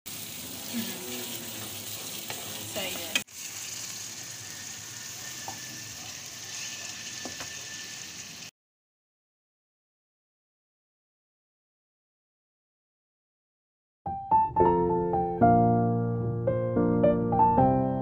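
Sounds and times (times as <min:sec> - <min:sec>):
chicken sizzling in oil: 0:00.1 - 0:08.5
onions frying in oil: 0:00.1 - 0:08.5
spatula stirring: 0:01.1 - 0:07.9.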